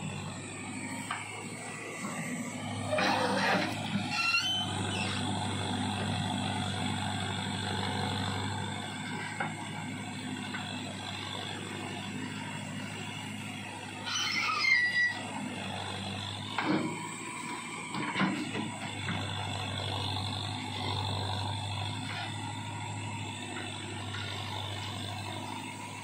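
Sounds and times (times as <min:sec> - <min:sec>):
tractor diesel engine running: 0:00.0 - 0:26.0
bucket clatter and squeal: 0:02.9 - 0:05.2, 0:14.1 - 0:15.2.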